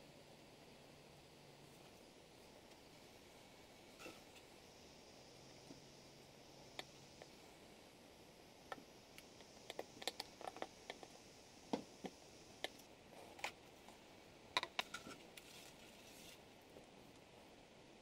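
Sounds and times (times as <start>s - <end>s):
small hand tools clicking and tapping: 8.7s - 11.2s, 11.8s - 13.6s.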